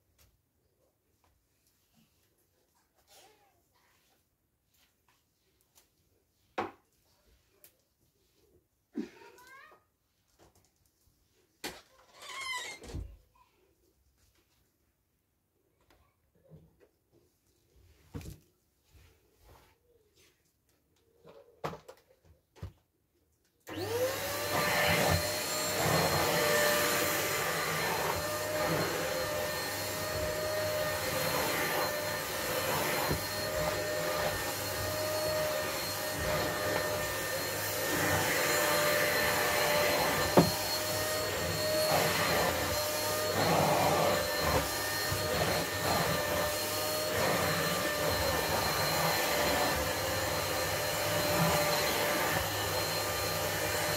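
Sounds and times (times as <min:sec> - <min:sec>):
vacuum cleaner motor whine: 0:23.7 - 0:53.9.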